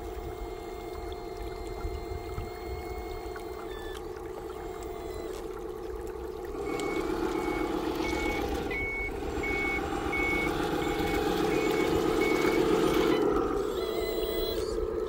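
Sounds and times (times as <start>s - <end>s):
steady drone of toy truck drive: 6.5s - 15.0s
toy truck reversing beeper: 6.6s - 15.0s.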